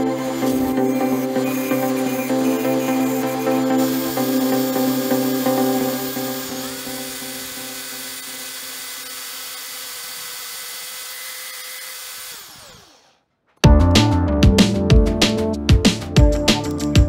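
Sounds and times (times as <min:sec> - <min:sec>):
file scraping spinning wood: 0:00.0 - 0:13.2
electric drill motor whining: 0:00.0 - 0:13.3.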